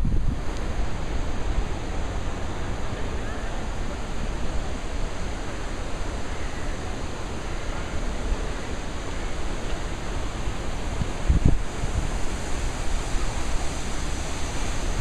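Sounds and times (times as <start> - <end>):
wind buffeting microphone: 0.0 - 2.6, 8.1 - 15.0.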